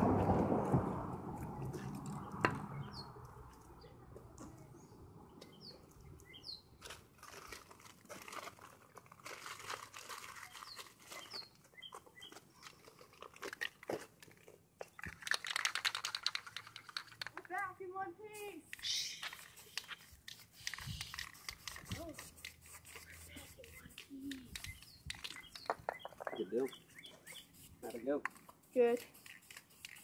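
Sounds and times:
bird chirps: 0:02.2 - 0:03.2, 0:04.8 - 0:06.8, 0:10.5 - 0:12.4, 0:18.8 - 0:20.1, 0:23.5 - 0:27.7
faint crinkling: 0:03.3 - 0:30.0.

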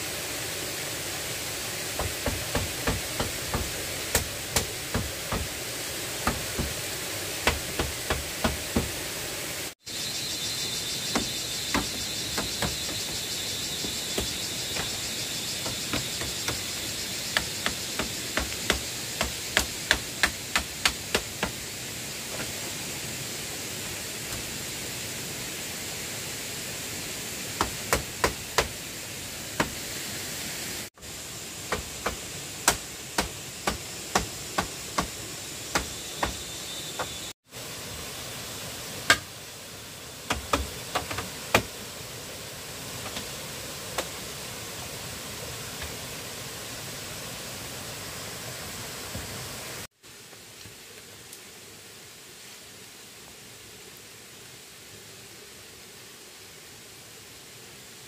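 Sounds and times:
steady background hiss: 0:00.0 - 0:58.0
hand tool striking bamboo: 0:02.0 - 0:05.6, 0:06.2 - 0:09.0, 0:11.1 - 0:21.6, 0:27.6 - 0:28.8, 0:29.6 - 0:29.8, 0:31.6 - 0:36.4, 0:39.1 - 0:39.3.

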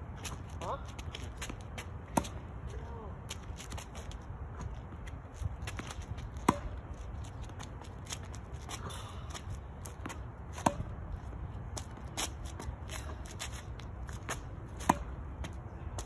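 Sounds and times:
feet and balls scuffing on court: 0:00.0 - 0:16.0
tennis racket hitting ball: 0:05.7 - 0:06.8, 0:10.0 - 0:11.0, 0:14.2 - 0:15.2.

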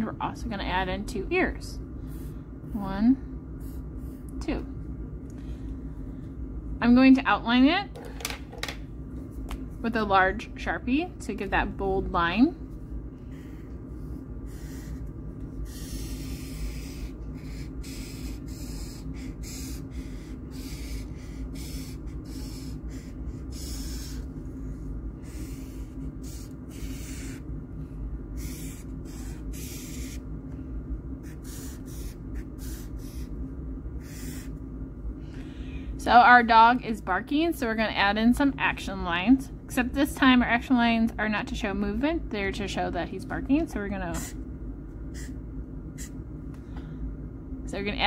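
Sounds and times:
steady low hum: 0:00.0 - 0:48.0
marker scratching on paper: 0:14.5 - 0:24.3, 0:25.2 - 0:27.4, 0:28.4 - 0:30.2, 0:31.2 - 0:33.3, 0:34.0 - 0:34.5.

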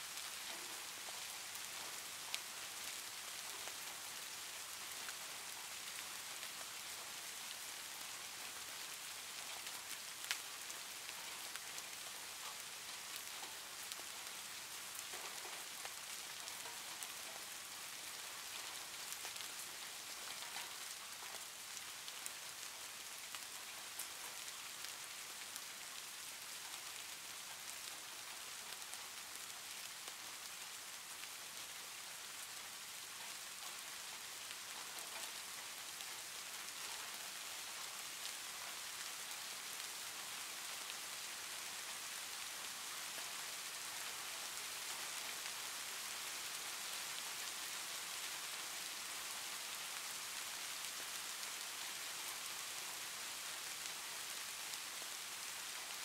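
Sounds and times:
rain falling: 0:00.0 - 0:56.0
faint drip ticks: 0:33.2 - 0:37.9.

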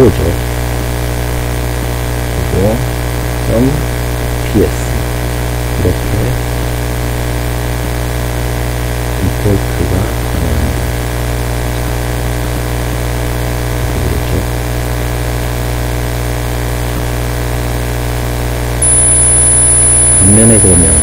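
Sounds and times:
electrical hum with hiss: 0:00.0 - 0:21.0
high thin whine: 0:18.8 - 0:21.0.

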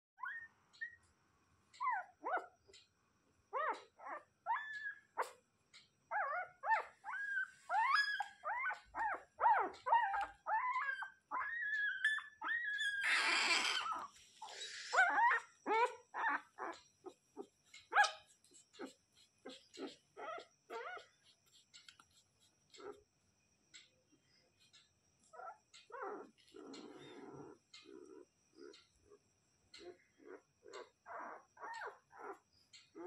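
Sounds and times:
puppies whimpering: 0:06.1 - 0:21.1.

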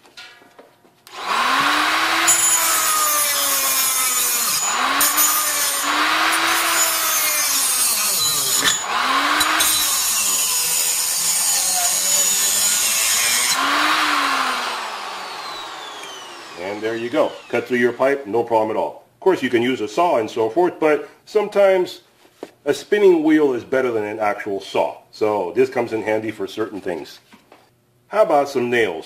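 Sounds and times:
cut-off tool grinding metal pipe: 0:01.1 - 0:17.8.

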